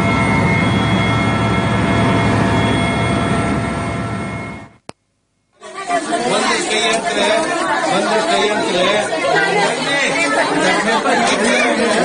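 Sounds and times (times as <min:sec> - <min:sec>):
helicopter engine rumble: 0:00.0 - 0:04.8
high turbine whine: 0:00.0 - 0:04.9.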